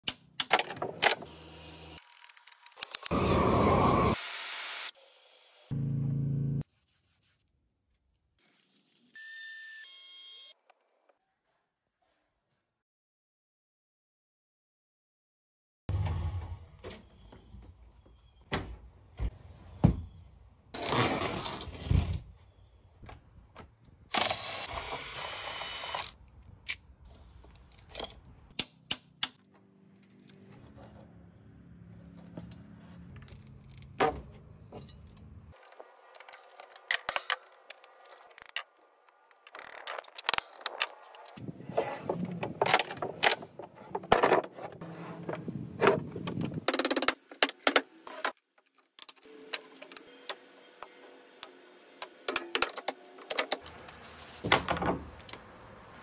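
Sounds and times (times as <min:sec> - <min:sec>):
tools and plywood clattering: 0:00.0 - 0:01.3, 0:32.1 - 0:50.0.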